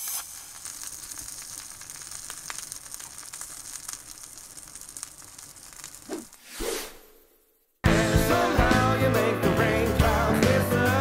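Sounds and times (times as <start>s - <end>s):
sizzling hiss with crackles: 0.0s - 7.3s.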